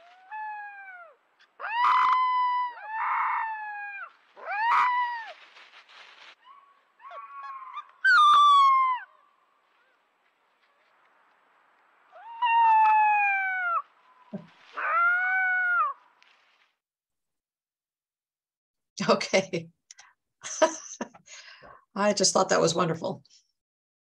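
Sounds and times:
wolf pup howling: 0.0s - 5.5s, 6.3s - 10.1s, 12.2s - 16.0s.

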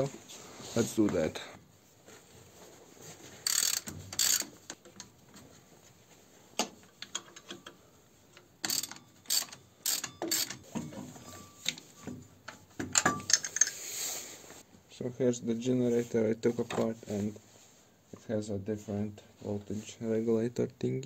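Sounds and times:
ratchet wrench clicking: 3.5s - 4.8s, 8.6s - 10.6s
metallic clicks and knocks: 6.6s - 13.8s.

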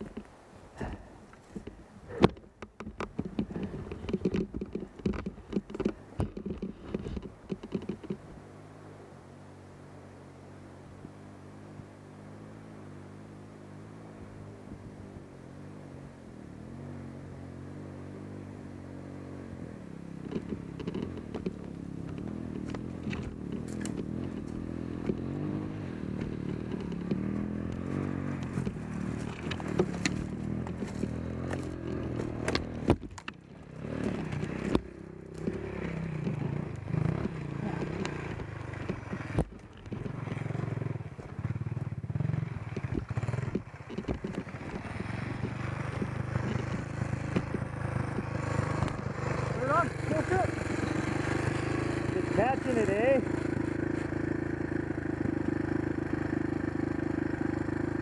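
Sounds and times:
motorcycle engine revving: 0.0s - 58.0s
sharp clattering knocks: 1.6s - 8.2s.

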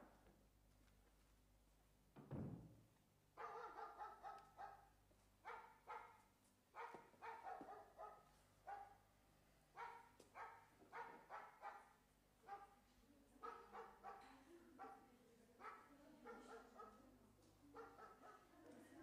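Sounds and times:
dog barking: 3.4s - 9.0s, 9.8s - 12.8s, 13.4s - 17.0s, 17.7s - 18.5s.

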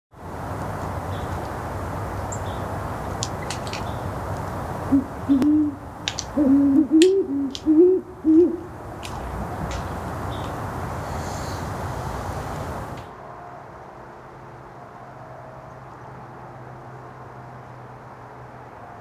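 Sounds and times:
steady background hiss: 0.2s - 14.7s
owl hooting: 4.9s - 8.7s.

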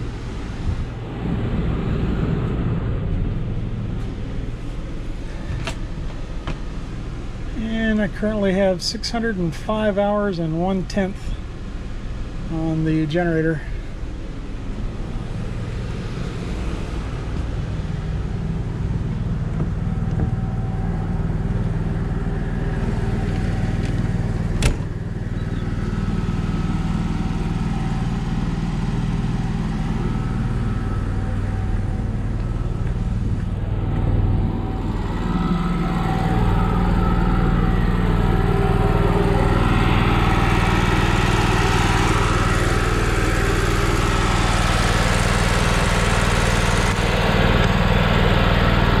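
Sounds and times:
generator running: 0.0s - 49.0s.

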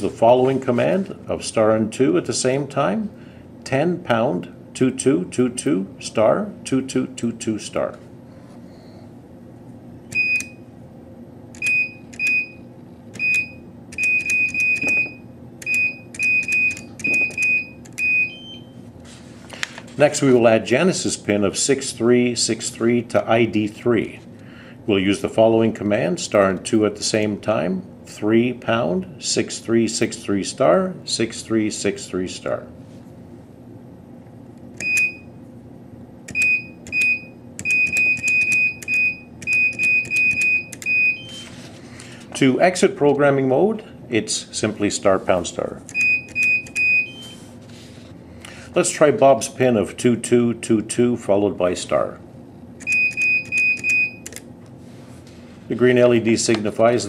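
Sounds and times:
keypad beeps: 10.1s - 10.6s, 11.6s - 12.6s, 13.2s - 18.7s, 34.8s - 35.3s, 36.3s - 41.5s, 45.9s - 47.4s, 52.8s - 54.4s.

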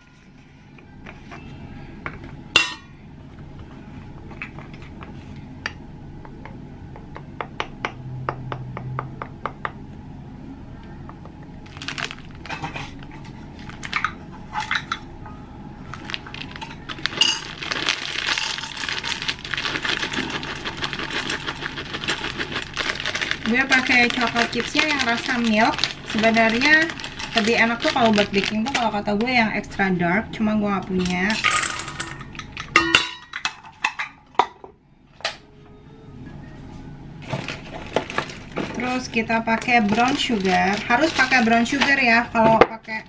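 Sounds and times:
chocolate chips rattling into a cup: 11.7s - 12.7s, 15.9s - 29.0s, 39.6s - 42.0s.

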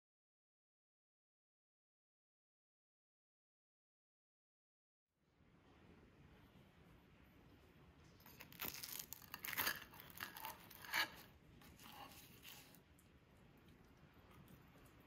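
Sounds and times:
knife and fork cutting pastry: 8.2s - 12.8s
flaky pastry crackling and crunching: 8.2s - 15.0s.

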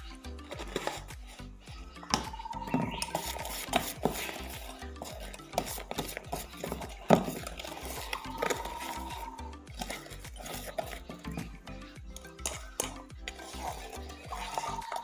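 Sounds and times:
whisk scraping metal pot: 0.0s - 15.0s.

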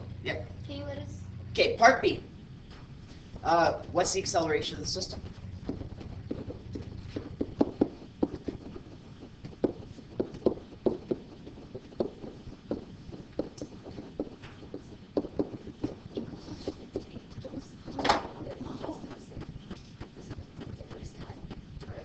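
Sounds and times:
pen tapping on whiteboard: 5.7s - 16.3s.

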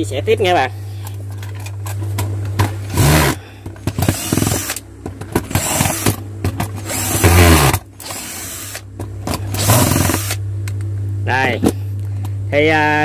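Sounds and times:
cordless drill whirring: 2.9s - 4.8s, 5.5s - 6.2s, 6.8s - 8.8s, 9.5s - 10.4s.

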